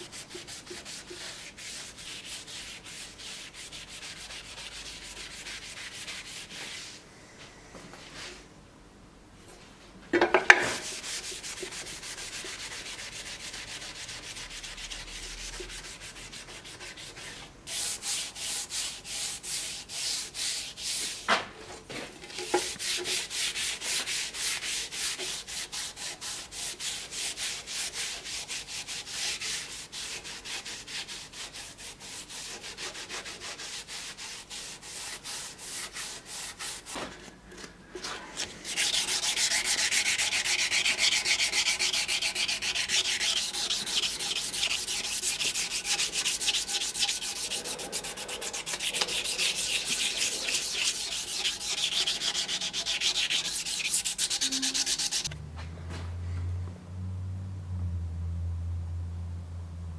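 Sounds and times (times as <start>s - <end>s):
abrasive scraping steel blade: 38.4s - 55.4s.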